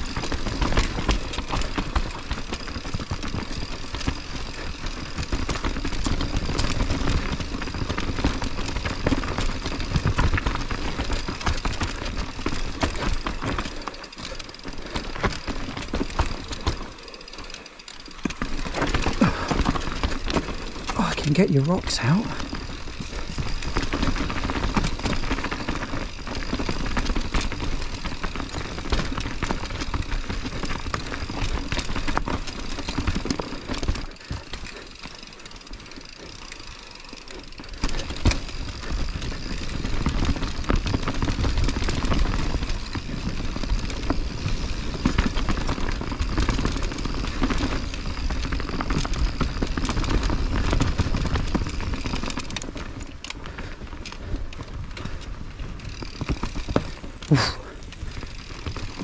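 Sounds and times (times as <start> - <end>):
bike clicks and rattles: 0.0 - 59.0
tyre and trail noise: 0.0 - 59.0.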